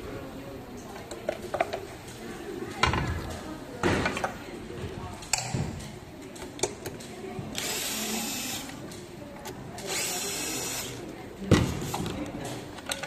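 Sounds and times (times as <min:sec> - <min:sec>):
electric screwdriver running: 0:07.6 - 0:08.7, 0:09.9 - 0:11.0.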